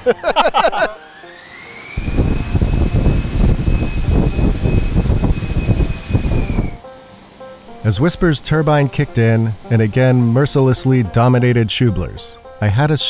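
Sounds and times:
electric fan whine: 0:00.0 - 0:13.0
loud low rush of air: 0:02.0 - 0:06.8.

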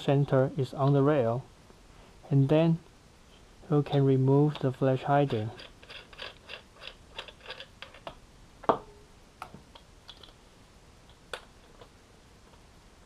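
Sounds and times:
small metal clicks and ticks: 0:03.9 - 0:08.2.

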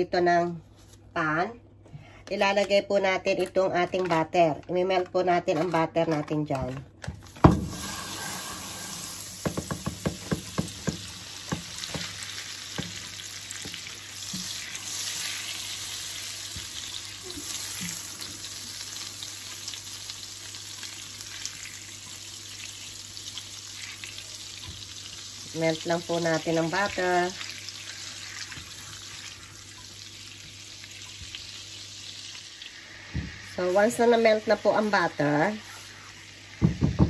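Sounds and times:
butter sizzling in frying pan: 0:07.4 - 0:37.0
spatula tapping in pan: 0:09.4 - 0:14.5.

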